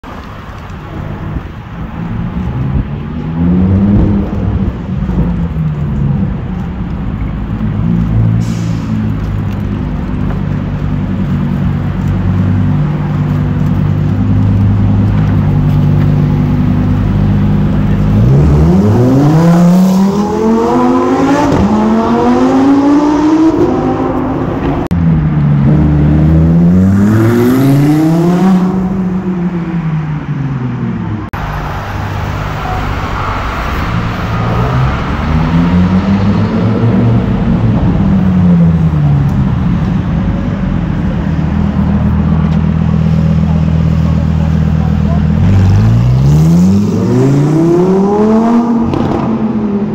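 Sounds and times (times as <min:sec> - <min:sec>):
sports car engine revving: 0:40.8 - 0:49.9.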